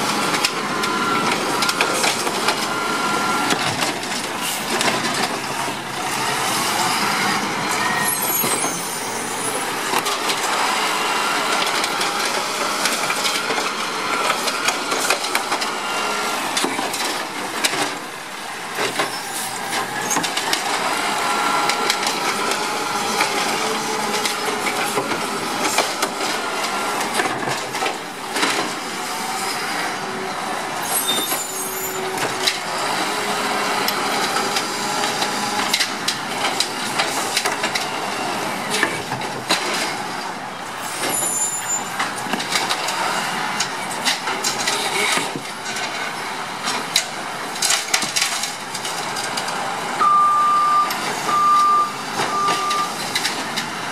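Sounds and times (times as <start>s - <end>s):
garbage truck engine and hydraulics: 0.0s - 53.9s
trash carts knocking and clattering: 3.5s - 6.0s, 16.5s - 19.1s, 21.6s - 28.9s, 41.0s - 49.7s.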